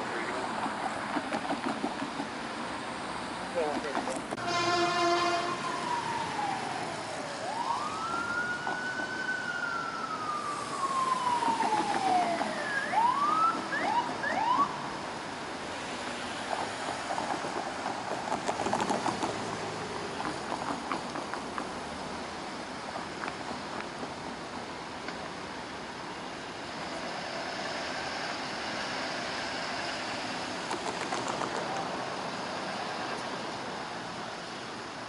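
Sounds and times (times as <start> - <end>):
vehicle and traffic rumble: 0.0 - 35.0
fire engine siren: 4.4 - 16.6.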